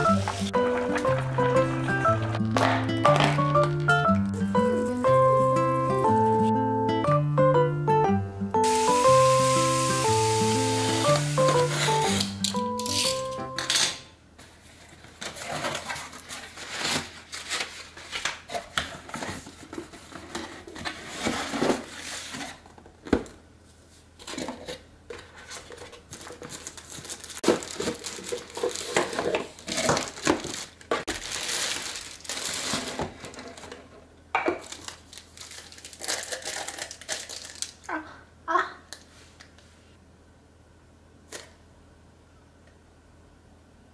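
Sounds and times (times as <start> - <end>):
cardboard and plastic rustling: 0.0 - 6.5, 11.0 - 13.0, 14.4 - 37.8.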